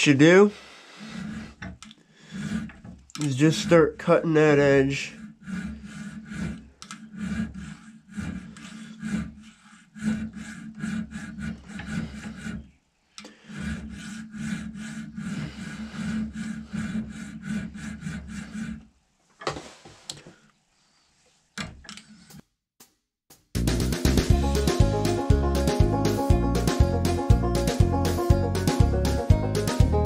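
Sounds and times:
file stroking across steel: 0.0 - 19.0, 19.6 - 22.4.

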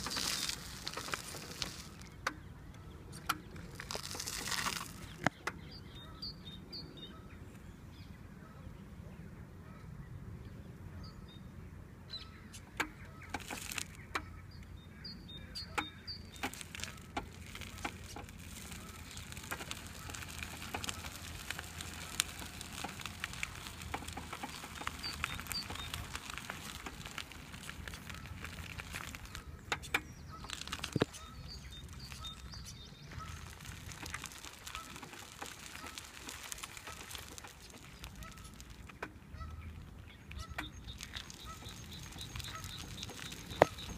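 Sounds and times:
tyres crunching on gravel: 0.0 - 6.1, 12.8 - 43.9
birds chirping: 12.1 - 43.9
wheelchair motor hum: 16.5 - 29.3.

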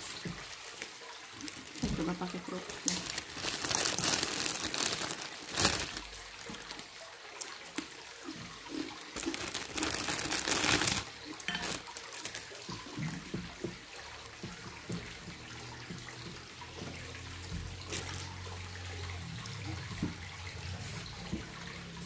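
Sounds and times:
crackers crunching: 2.6 - 6.9, 9.2 - 12.6.

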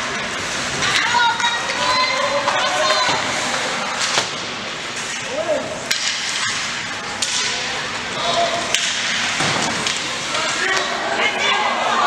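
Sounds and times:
hockey sticks and puck clacking: 0.0 - 11.5
arena crowd voices: 1.0 - 4.4, 6.8 - 12.0.

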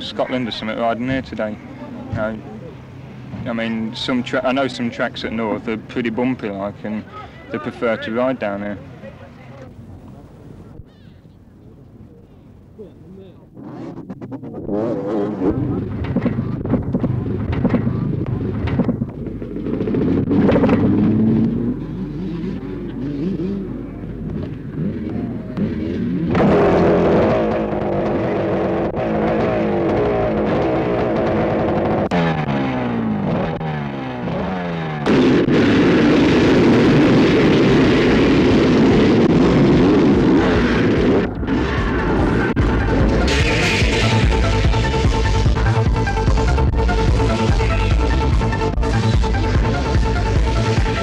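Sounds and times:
motocross bikes revving: 13.5 - 51.0.

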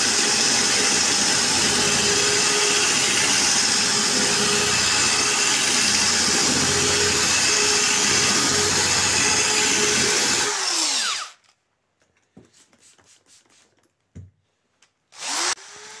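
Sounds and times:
drill grinding through glass: 0.0 - 11.4, 15.2 - 16.0
drill motor winding down: 0.0 - 11.4, 15.2 - 16.0.

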